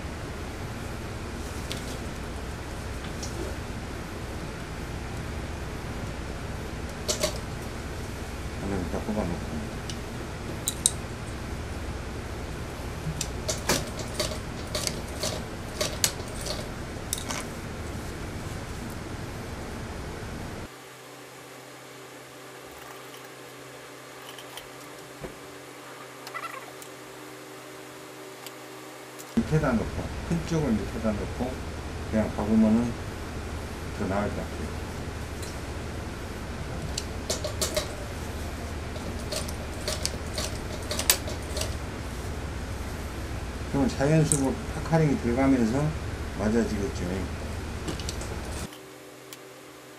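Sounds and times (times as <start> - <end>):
steady background hum: 0.0 - 49.9
sewing machine humming: 34.8 - 43.9.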